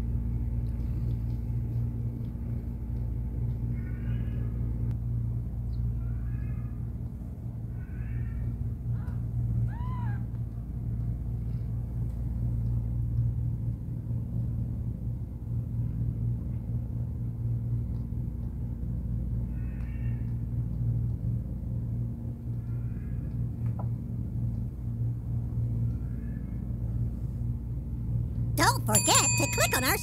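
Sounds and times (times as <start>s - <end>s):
steady low hum: 0.0s - 30.0s.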